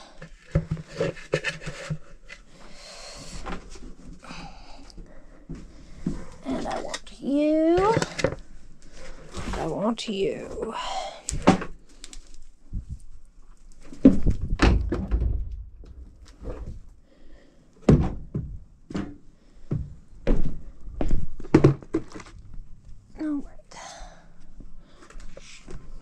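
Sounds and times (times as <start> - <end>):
knocks and thumps of carried vacuum: 13.9 - 16.9, 17.8 - 22.2.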